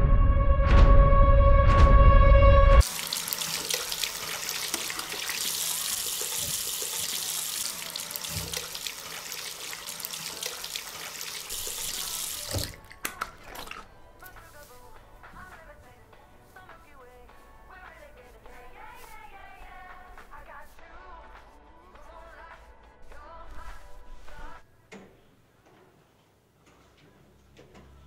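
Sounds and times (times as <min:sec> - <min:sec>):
tap water into washbasin: 0:02.8 - 0:13.9.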